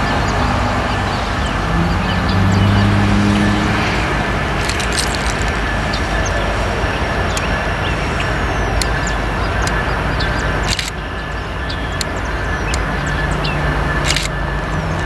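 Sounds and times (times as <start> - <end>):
steel wheels on rail: 0.0 - 15.0
faint clicks: 10.6 - 11.0, 14.0 - 14.4.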